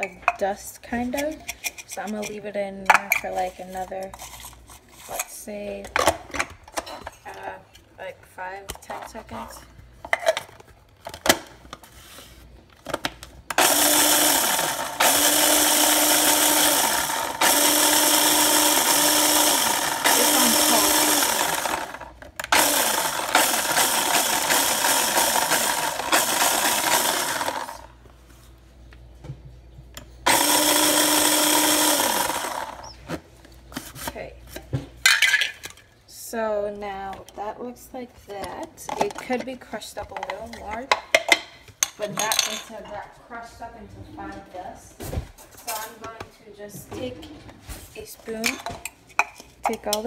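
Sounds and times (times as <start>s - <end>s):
food chopper grinding sprinkles: 13.5s - 27.9s, 30.3s - 33.0s.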